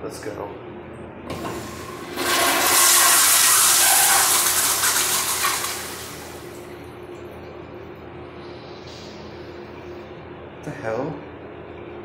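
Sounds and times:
toilet flushing: 0:01.3 - 0:06.7.

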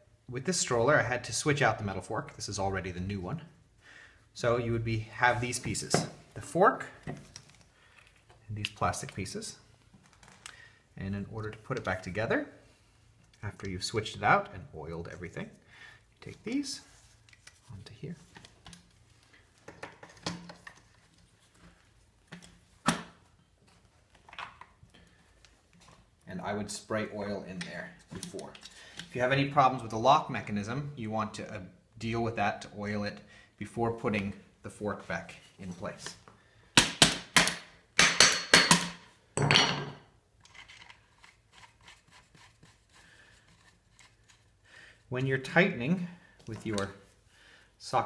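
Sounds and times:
faint handling sounds: 0:04.9 - 0:13.8, 0:14.9 - 0:26.3, 0:40.4 - 0:47.8.

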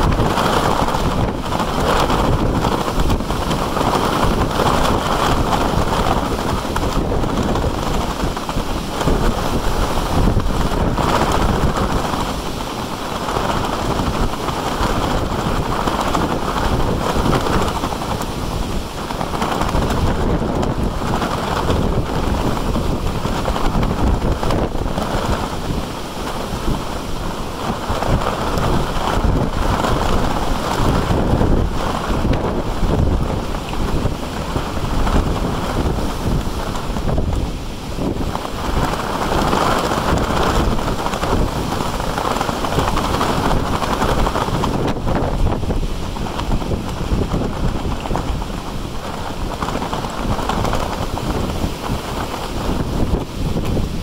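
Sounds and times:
wind buffeting microphone: 0:00.0 - 0:54.0.

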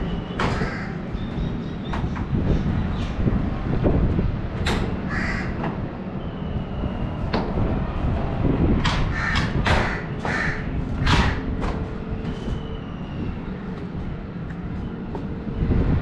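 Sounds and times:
crows cawing: 0:00.5 - 0:01.0, 0:05.1 - 0:05.6, 0:09.1 - 0:11.5.

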